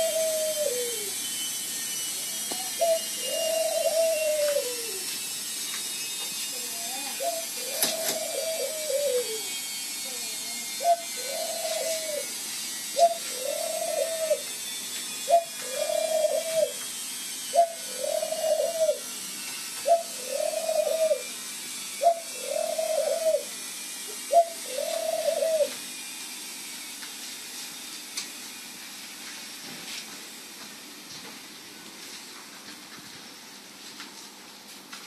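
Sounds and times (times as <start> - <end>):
dove cooing: 0.0 - 1.2, 2.3 - 5.1, 6.8 - 9.6, 10.6 - 12.3, 13.0 - 14.4, 15.3 - 16.8, 17.5 - 19.1, 19.8 - 21.3, 22.0 - 23.5, 24.2 - 25.8.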